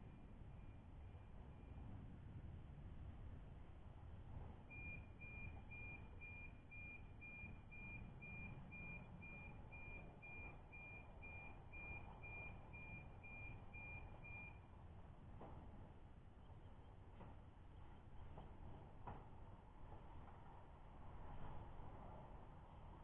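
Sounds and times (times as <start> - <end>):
faint high-pitched beep: 0.0 - 2.2, 4.6 - 14.8
low background rumble: 0.0 - 19.0.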